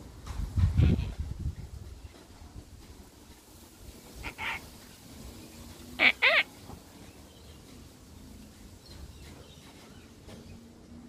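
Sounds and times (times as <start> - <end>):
cockatoo calling: 4.2 - 4.8, 5.9 - 6.7.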